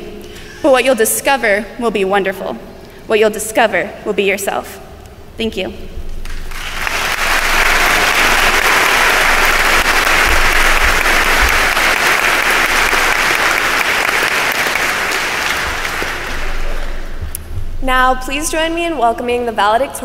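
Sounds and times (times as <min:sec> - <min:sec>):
audience applauding: 0:06.2 - 0:17.2.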